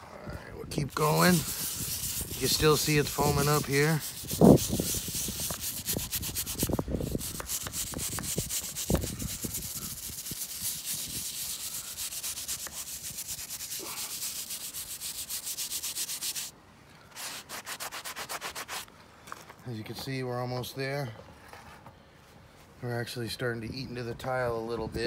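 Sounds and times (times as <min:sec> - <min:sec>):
wire brush scrubbing tile: 0:00.9 - 0:16.5.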